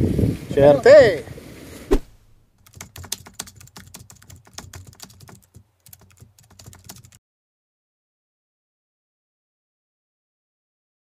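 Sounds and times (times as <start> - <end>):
keyboard key clicks: 2.6 - 7.2.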